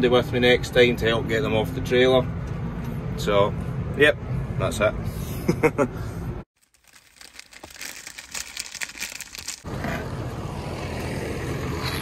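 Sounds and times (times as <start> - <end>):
plastic packet crinkling: 6.6 - 9.7.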